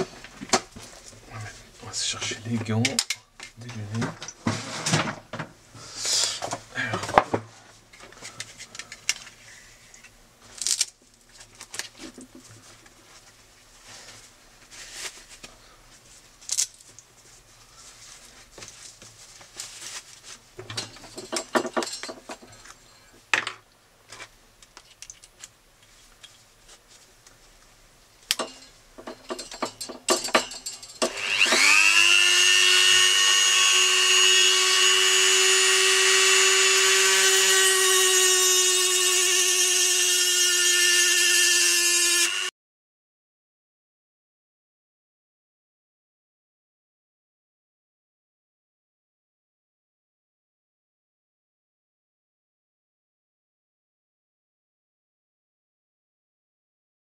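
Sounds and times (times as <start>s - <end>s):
clicks and rustles of handling: 6.4s - 23.1s, 24.0s - 31.1s
rotary tool whining: 28.4s - 42.5s.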